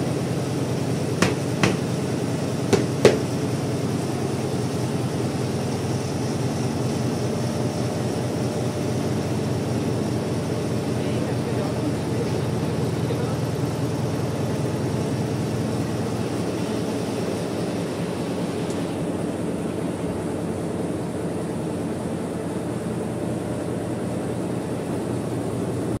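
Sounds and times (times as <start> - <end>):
embroidery machine running: 0.0 - 26.0.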